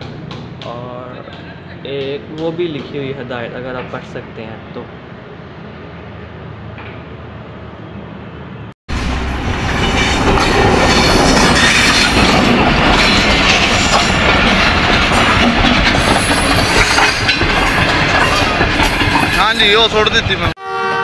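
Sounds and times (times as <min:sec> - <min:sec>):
train passing close by: 0:04.8 - 0:21.0.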